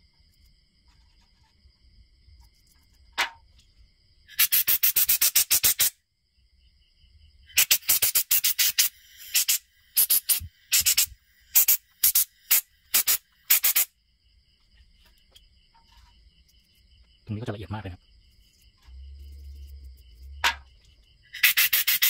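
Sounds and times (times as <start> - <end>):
crickets chirping: 0.0 - 22.0
toothbrush scrubbing metal: 21.4 - 22.0.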